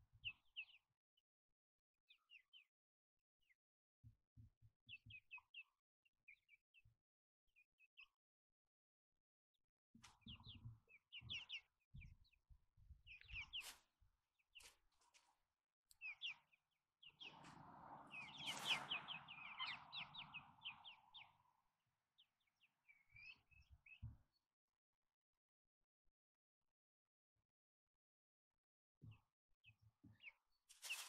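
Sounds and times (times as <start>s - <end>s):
hens chirping: 13.2s - 13.8s, 18.1s - 21.4s, 30.7s - 31.0s.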